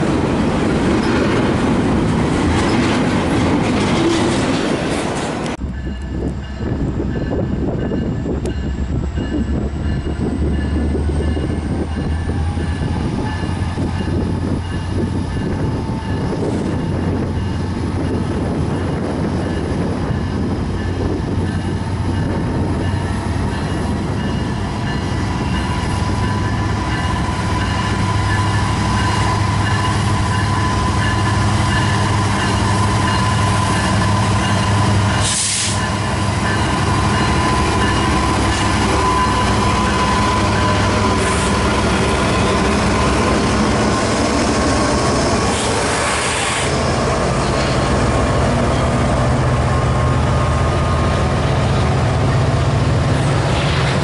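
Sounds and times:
diesel locomotives passing: 0.0 - 54.0
burst of hiss: 35.2 - 35.8.

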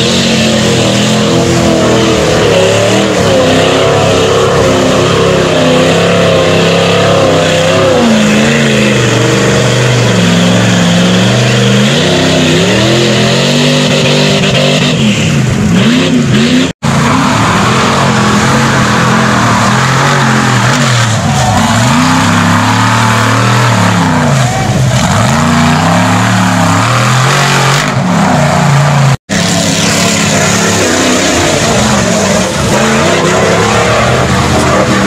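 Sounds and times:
truck engines revving: 0.0 - 35.0
tyres churning through mud: 0.0 - 35.0.

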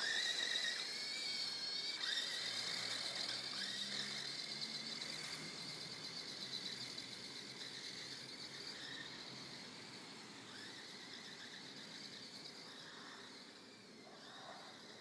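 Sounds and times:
toy car motor whining: 0.0 - 15.0.

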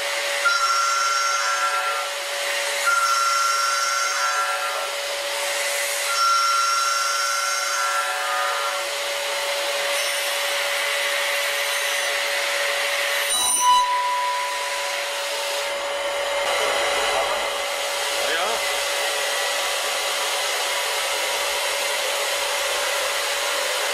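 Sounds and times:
milling machine whine: 0.0 - 23.9
high cutting tones: 2.8 - 4.9, 13.2 - 19.6.

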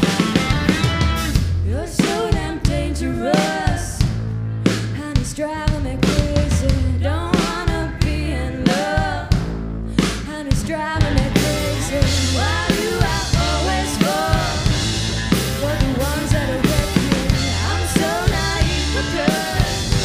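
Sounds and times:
distorted electric guitars: 0.0 - 1.7, 11.0 - 20.0
bass guitar: 0.0 - 20.0
drum kit: 0.0 - 20.0
woman singing: 1.6 - 4.1, 4.9 - 9.4, 10.0 - 14.8, 15.5 - 20.0.

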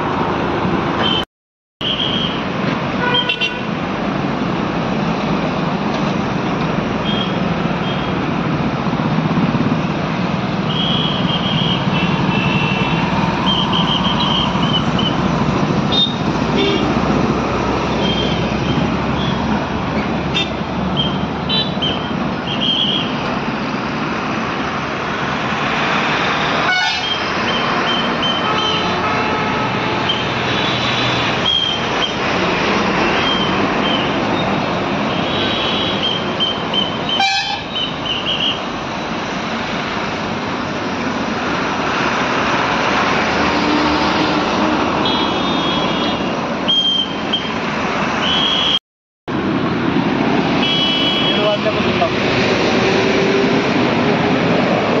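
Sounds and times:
heavy traffic engine and tyre din: 1.8 - 55.0
vehicle horns tooting: 3.0 - 3.8, 7.0 - 8.2, 10.7 - 15.2, 15.9 - 17.0, 20.3 - 23.2, 26.6 - 32.2, 35.1 - 38.6, 45.0 - 47.6, 48.2 - 48.8, 50.6 - 51.8.

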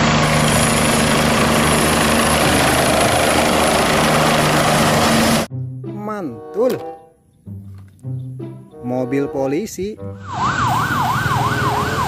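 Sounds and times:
helicopter rotor beating: 0.0 - 5.5, 10.4 - 12.0
helicopter turbines whining: 0.0 - 5.5, 10.2 - 12.0.

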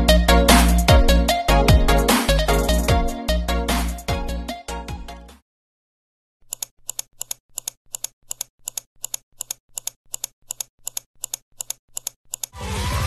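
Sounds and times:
electronic background music: 0.0 - 5.3
sharp clicks: 6.5 - 12.6.

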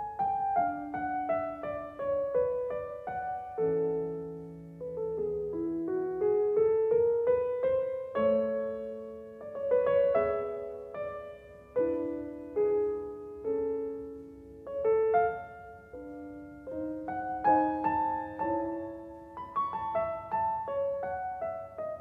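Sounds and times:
solo piano music: 0.0 - 22.0.

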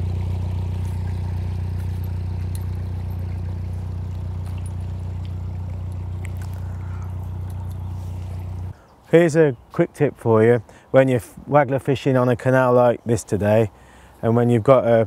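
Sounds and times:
boat engine droning: 0.0 - 8.8.

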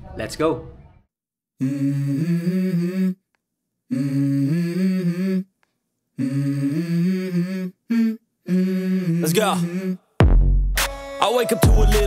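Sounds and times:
person humming a melody: 1.6 - 3.2, 3.9 - 5.5, 6.2 - 10.0.

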